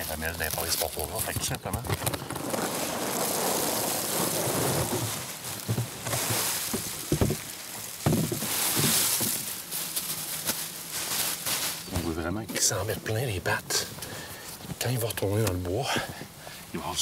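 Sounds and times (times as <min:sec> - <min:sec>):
bread chunks pattering onto pile: 0:00.0 - 0:11.8.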